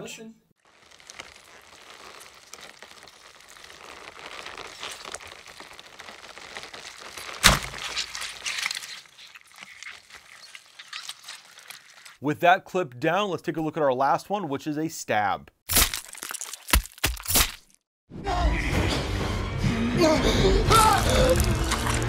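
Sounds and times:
crackling crunches: 0:00.6 - 0:12.2, 0:15.7 - 0:17.8, 0:20.8 - 0:22.0
wet squelching gush: 0:00.6 - 0:12.2, 0:20.7 - 0:22.0.

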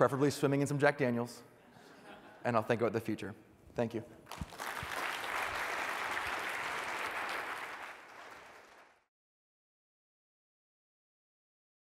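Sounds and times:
audience applauding: 0:04.3 - 0:09.1.

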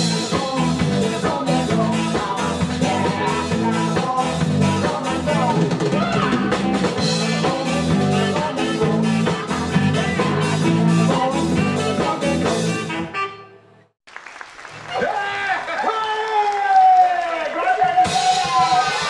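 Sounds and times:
man singing: 0:00.0 - 0:12.9
live rock band playing: 0:00.0 - 0:13.6, 0:17.9 - 0:19.0
woman singing: 0:00.2 - 0:05.3.

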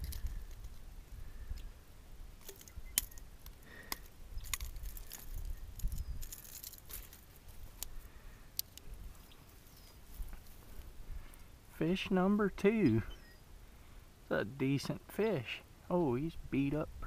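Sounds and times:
light metallic clicks and jingles: 0:02.4 - 0:08.0.

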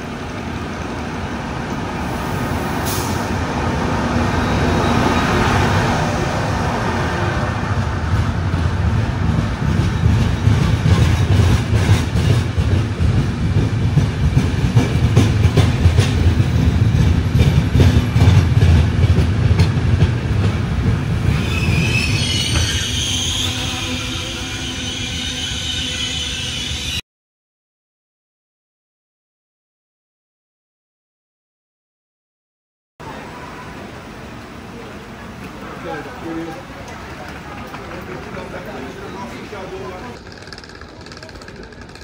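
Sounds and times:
train coaches rumbling: 0:00.0 - 0:27.0, 0:33.0 - 0:42.0
high wheel squeal: 0:21.3 - 0:27.0
wheels clicking over rail joints: 0:35.4 - 0:42.0.

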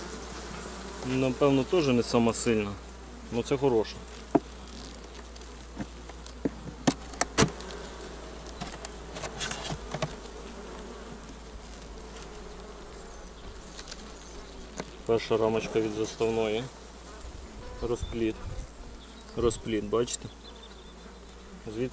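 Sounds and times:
bees humming: 0:00.0 - 0:21.9
hive tool clicking on wooden frames: 0:04.1 - 0:12.8.

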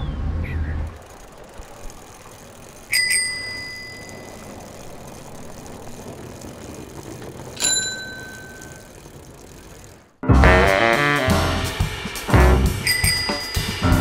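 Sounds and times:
bicycle bell ringing: 0:01.1 - 0:05.1, 0:07.3 - 0:09.7, 0:12.8 - 0:13.8.

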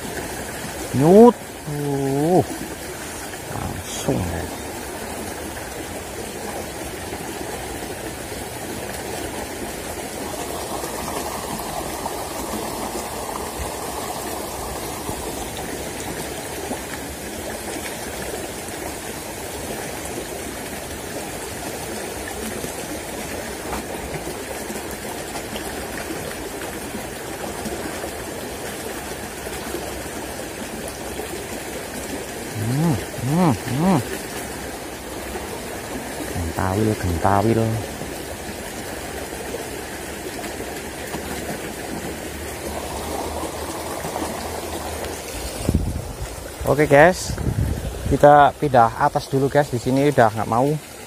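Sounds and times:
shallow river flowing over stones: 0:00.0 - 0:51.0.

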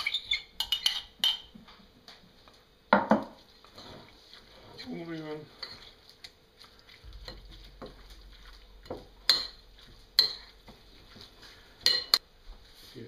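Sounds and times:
wet squelches of mixing meat: 0:03.4 - 0:11.8.

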